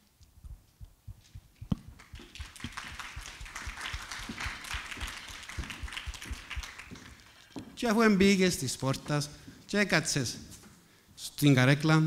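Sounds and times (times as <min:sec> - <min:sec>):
audience applauding: 0:02.0 - 0:07.5.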